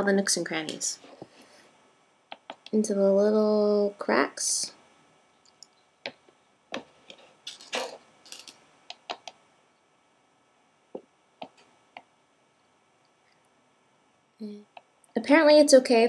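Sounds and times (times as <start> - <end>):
utensil tapping candy mold: 2.3 - 2.8, 8.9 - 9.4.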